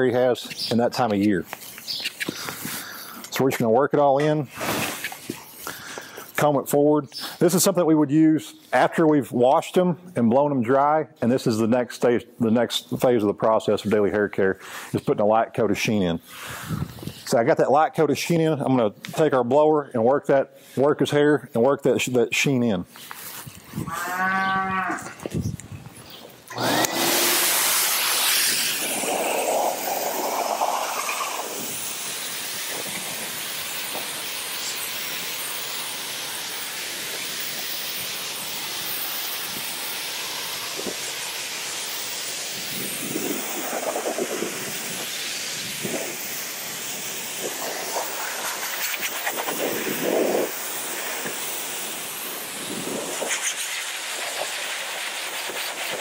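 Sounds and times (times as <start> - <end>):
livestock blower hissing: 1.5 - 3.4, 4.5 - 6.4, 16.2 - 17.4, 26.4 - 56.0
calf mooing: 23.9 - 25.2.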